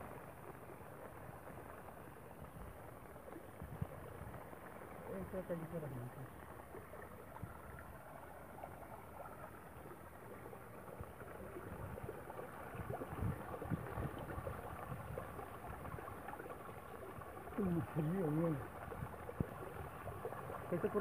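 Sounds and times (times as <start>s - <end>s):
running water: 0.0s - 21.0s.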